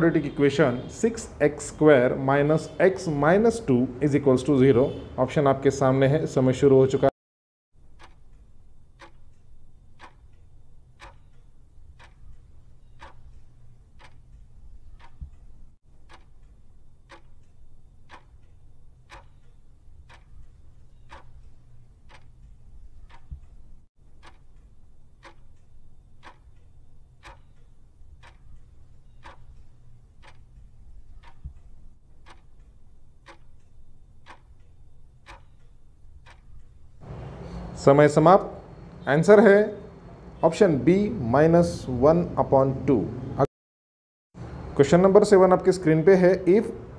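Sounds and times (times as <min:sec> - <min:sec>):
clock-like ticking: 0:07.8 - 0:37.1.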